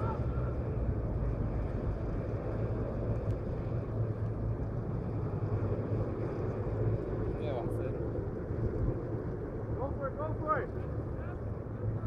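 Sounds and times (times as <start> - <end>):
constant low hum: 0.0 - 12.0
low outdoor rumble: 0.0 - 12.0.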